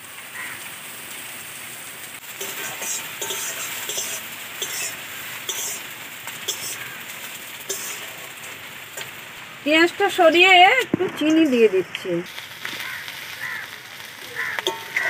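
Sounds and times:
onions sizzling in oil: 0.0 - 15.0
steel spatula scraping pan: 2.4 - 9.1, 14.6 - 15.0.

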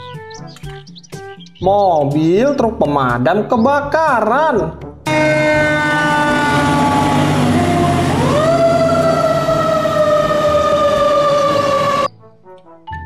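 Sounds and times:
fire engine siren wailing: 5.1 - 12.1
low engine rumble: 5.1 - 12.1.

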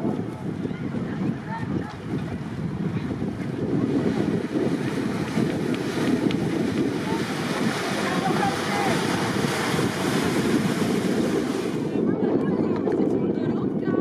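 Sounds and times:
wind buffeting the microphone: 0.0 - 14.0
churned water hissing: 3.1 - 12.0.

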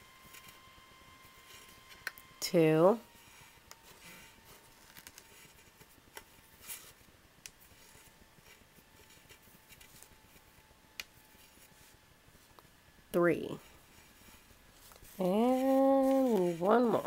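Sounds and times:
faint steady hum: 0.0 - 17.0
soft rustles of knotting strings: 3.2 - 10.6, 13.6 - 17.0.

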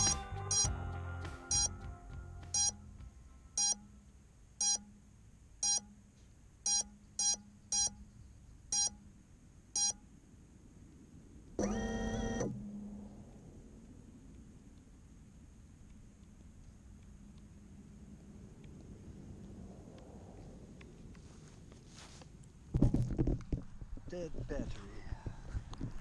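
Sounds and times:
short electronic beeps: 0.0 - 0.7, 1.5 - 1.7, 2.6 - 2.8, 3.6 - 3.9, 4.6 - 5.0, 5.6 - 6.0, 6.6 - 8.0, 8.7 - 9.0, 9.8 - 10.0
long steady electronic tone: 0.0 - 1.9, 2.5 - 8.1, 11.6 - 14.0
background music: 0.0 - 4.1.

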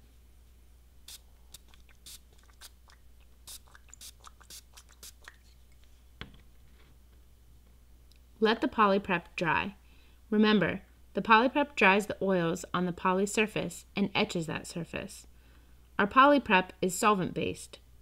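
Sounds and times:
spray bottle spritzes: 1.1 - 5.5.

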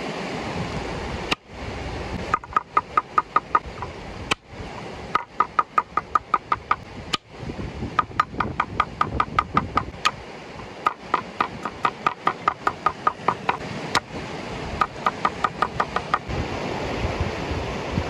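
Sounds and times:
knife chopping on cutting board: 10.9 - 13.6.

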